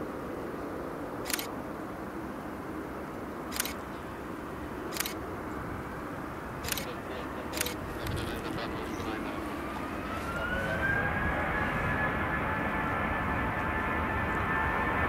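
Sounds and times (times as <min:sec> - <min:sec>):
jet engines idling: 0:00.0 - 0:15.0
camera shutter clicks: 0:01.2 - 0:01.5, 0:03.5 - 0:03.8, 0:04.9 - 0:05.2, 0:06.6 - 0:08.2.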